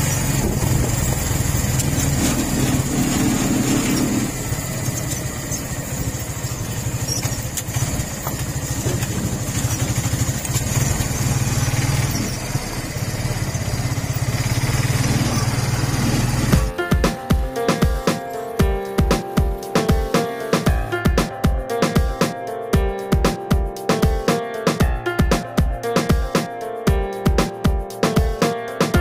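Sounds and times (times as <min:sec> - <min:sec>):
road and wind noise: 0:00.0 - 0:19.6
motorcycle engine running: 0:00.0 - 0:21.6.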